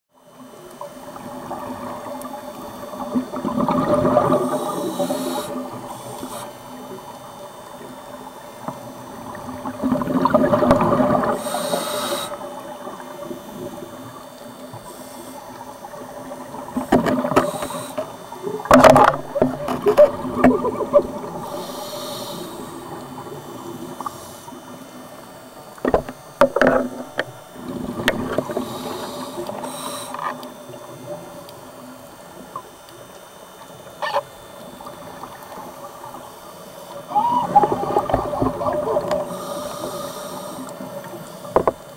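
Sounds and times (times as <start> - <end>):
exhaled bubbles rumbling underwater: 0.2 - 29.6, 30.4 - 41.9
regulator hissing inhalations: 4.4 - 6.8, 11.4 - 12.6, 17.2 - 18.3, 21.3 - 23.0, 28.4 - 30.4, 39.2 - 41.5.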